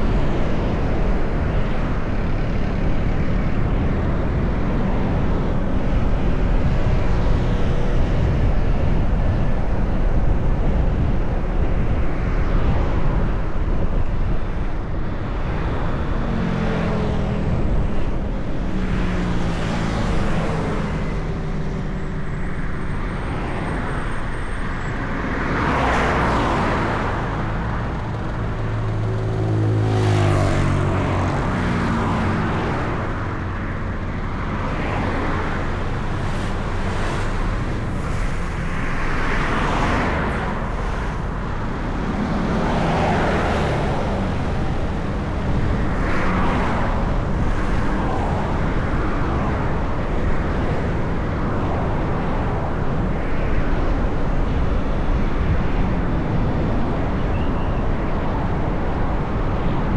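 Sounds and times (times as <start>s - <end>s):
car engine and road rumble: 0.0s - 59.9s
passing traffic rushing: 0.0s - 59.9s.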